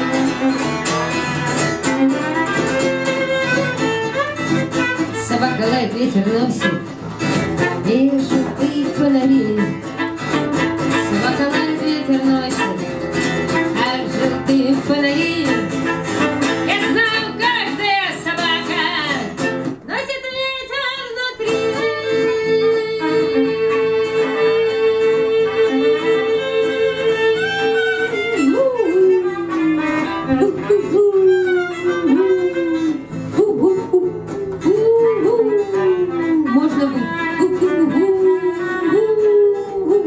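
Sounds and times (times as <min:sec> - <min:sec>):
strummed acoustic guitar: 0:00.0 - 0:40.0
wavering wordless lead melody: 0:21.4 - 0:40.0.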